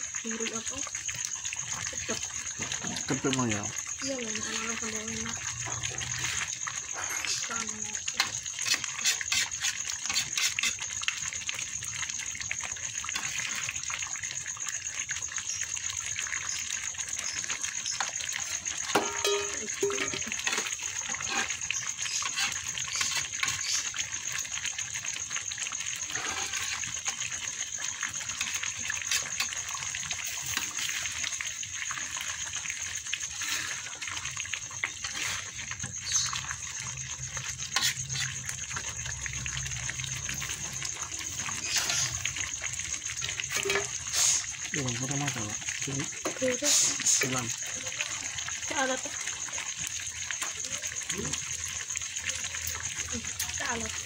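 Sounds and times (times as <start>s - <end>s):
sauce sizzling with crackling pops: 0.0s - 54.0s
metal spoon stirring: 8.2s - 10.8s, 17.9s - 23.8s, 26.1s - 27.2s, 37.6s - 38.5s.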